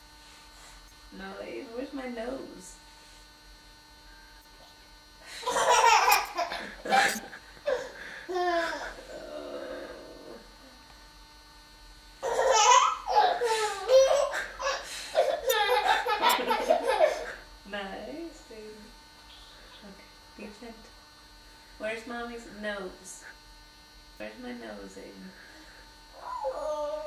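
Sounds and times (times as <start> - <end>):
woman laughing: 5.4 - 8.9, 13.2 - 17.4
child laughing: 5.4 - 9.0, 12.2 - 17.4.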